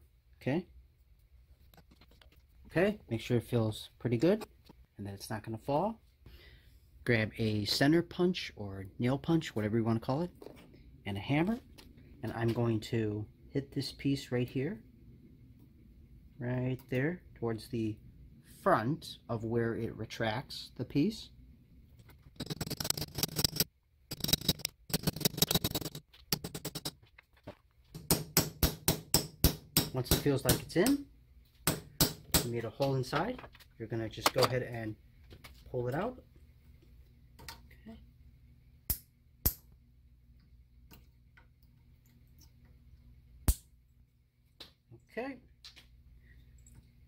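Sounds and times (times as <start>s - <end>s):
hammer striking metal punch: 28.0s - 30.7s.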